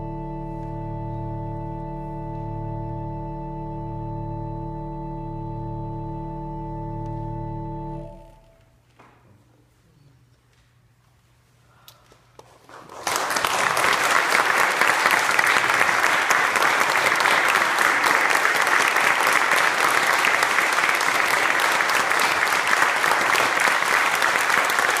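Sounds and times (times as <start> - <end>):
audience applause: 12.7 - 25.0.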